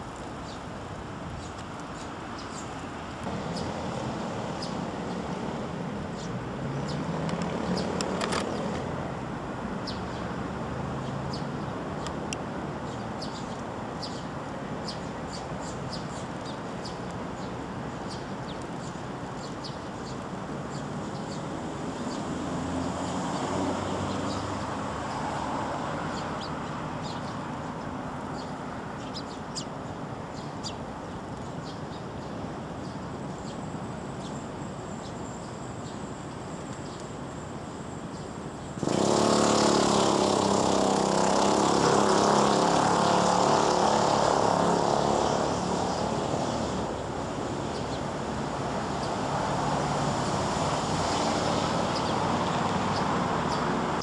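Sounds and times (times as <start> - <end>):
road traffic hum: 0.0 - 54.0
faint sparrow chirps: 1.4 - 2.8, 12.8 - 22.3, 26.1 - 37.5.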